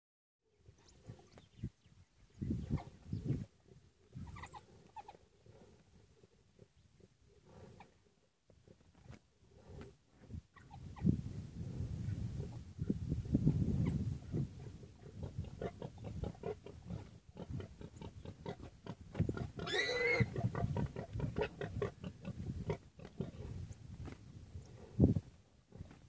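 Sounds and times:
warthog grunting and squealing: 19.2s - 23.5s.

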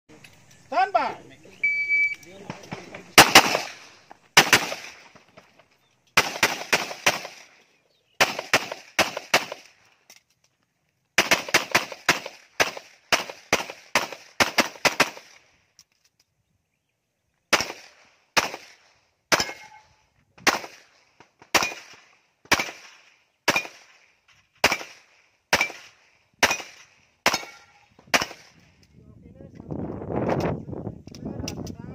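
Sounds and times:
handgun shots with echo: 2.5s - 3.8s, 19.3s - 19.8s, 21.5s - 22.9s, 23.5s - 23.9s, 24.6s - 28.5s.

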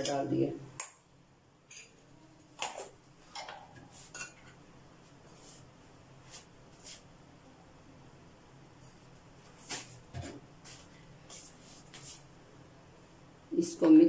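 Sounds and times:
kitchen utensils and dishes clinking: 2.6s - 4.6s.

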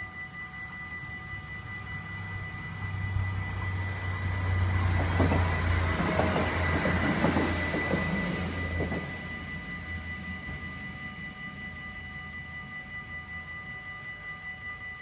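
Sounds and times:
crossing warning bells ringing: 0.0s - 15.0s
diesel train rumble: 1.6s - 13.0s
wheel clicks over rail joints: 5.0s - 9.1s.

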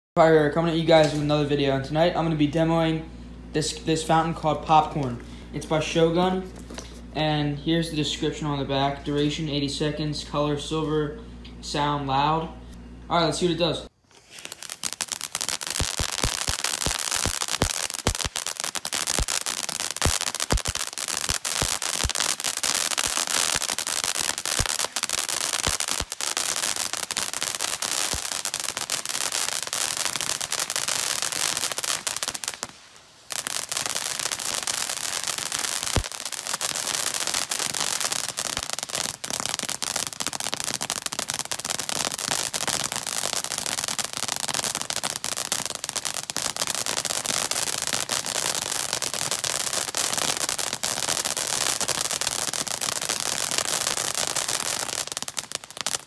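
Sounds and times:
firework hissing and crackling: 14.0s - 56.0s
sharp firework pops: 14.2s - 56.0s.

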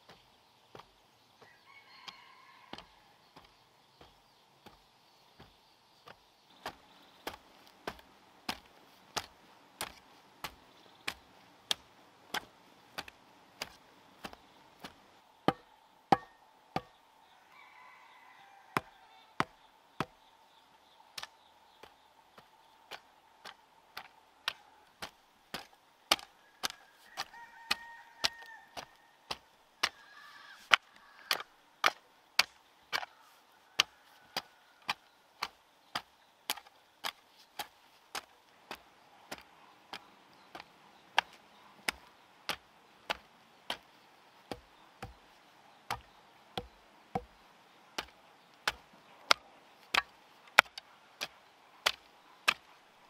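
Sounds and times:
hoe chopping into earth: 5.4s - 17.0s, 22.9s - 30.0s, 33.7s - 45.2s, 45.9s - 47.4s, 48.0s - 52.7s.

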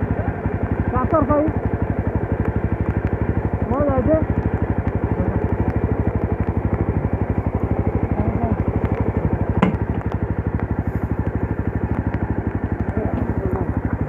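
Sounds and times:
motorcycle engine idling: 0.0s - 14.0s
sharp clunk: 9.6s - 9.8s.

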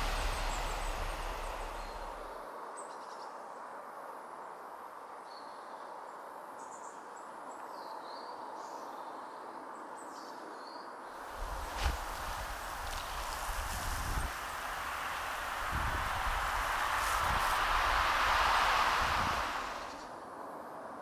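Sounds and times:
low rumble: 0.0s - 2.3s, 11.2s - 20.1s
soft steady hiss: 0.0s - 2.6s, 11.0s - 21.0s.

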